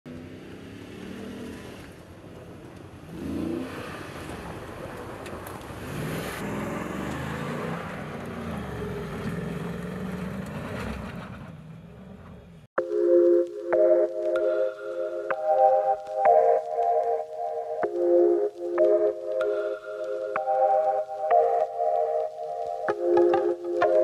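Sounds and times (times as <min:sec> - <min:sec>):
truck engine accelerating: 0:00.1 - 0:12.7.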